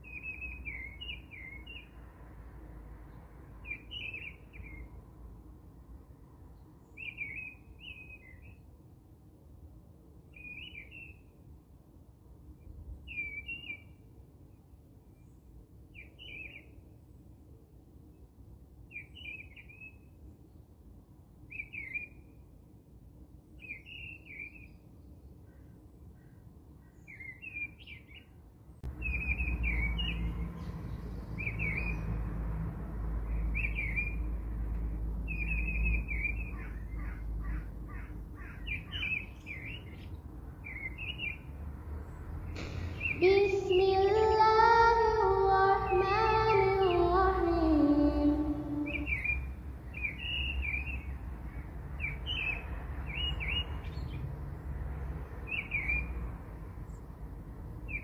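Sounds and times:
birds chirping: 0:23.6 - 0:32.2, 0:33.2 - 0:34.4, 0:35.2 - 0:54.3, 0:55.3 - 0:56.2
long pitched bird call: 0:42.6 - 0:51.0.

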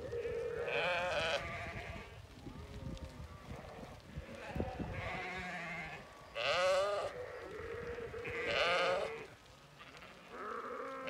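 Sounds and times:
sheep bleating: 0:00.1 - 0:02.1, 0:04.2 - 0:11.0.

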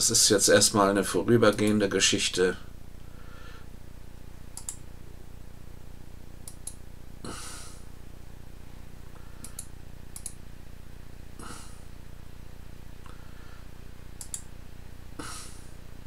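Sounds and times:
low electrical hum: 0:00.0 - 0:16.0
short breaths near microphone: 0:03.0 - 0:03.8, 0:13.0 - 0:13.8
computer mouse clicking: 0:04.6 - 0:04.8, 0:06.4 - 0:06.8, 0:09.4 - 0:10.4, 0:14.2 - 0:14.5.

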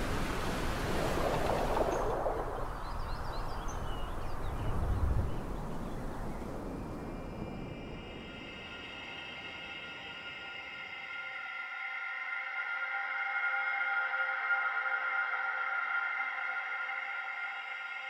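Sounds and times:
outdoor rushing noise: 0:00.0 - 0:08.5.

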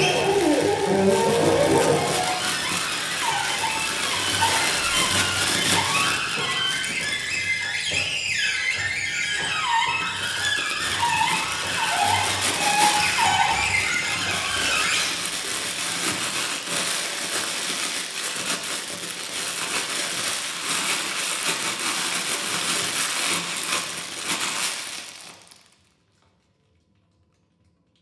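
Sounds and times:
crackling scratching noise: 0:00.0 - 0:07.2, 0:10.9 - 0:25.8.

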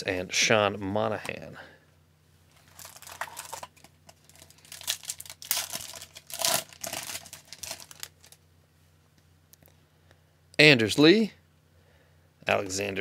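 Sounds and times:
foil wrapper crinkling and tearing: 0:02.6 - 0:08.4.

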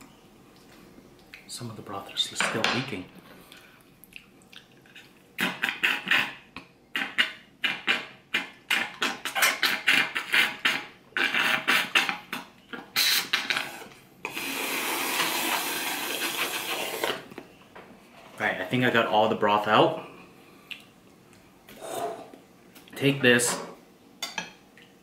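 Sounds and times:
slurping broth through a straw: 0:12.9 - 0:17.3.

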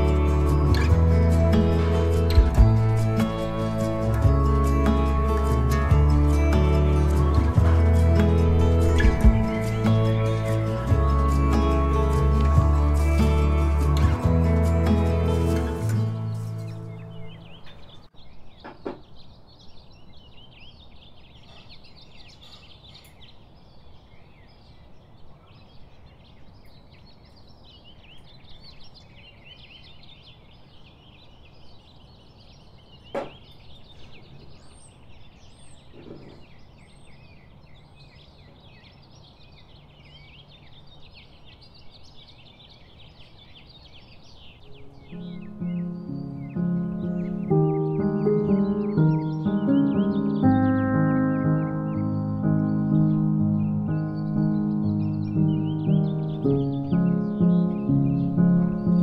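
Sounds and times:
small birds chirping: 0:00.0 - 0:59.0
high whistled bird calls: 0:27.2 - 0:59.0
sharp knock: 0:33.1 - 0:33.4.

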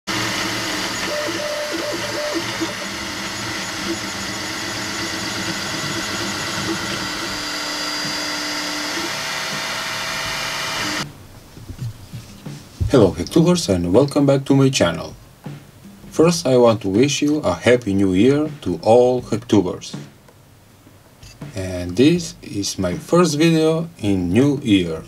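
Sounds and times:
three d printer motor whir: 0:00.1 - 0:11.1.

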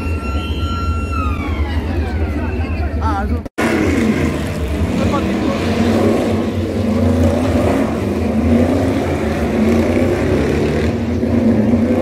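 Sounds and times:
race car engines passing: 0:03.3 - 0:12.0.

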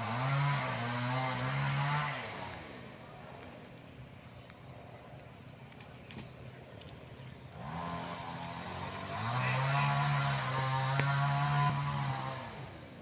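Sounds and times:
chainsaw cutting wood: 0:00.0 - 0:03.0, 0:07.5 - 0:12.9.

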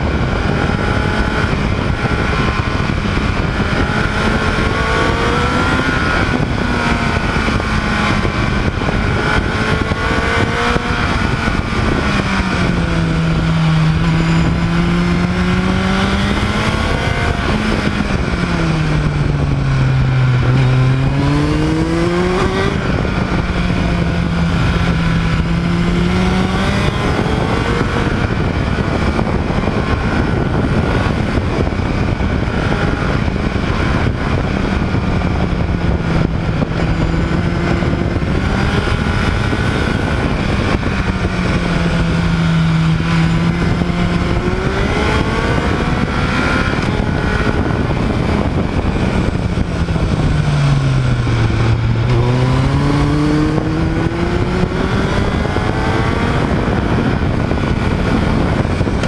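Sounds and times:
motorcycle engine revving: 0:00.0 - 0:59.0
wind and road noise: 0:00.0 - 0:59.0.

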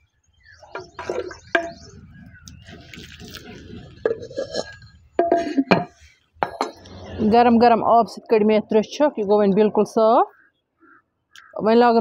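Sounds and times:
water sloshing: 0:00.6 - 0:06.7.

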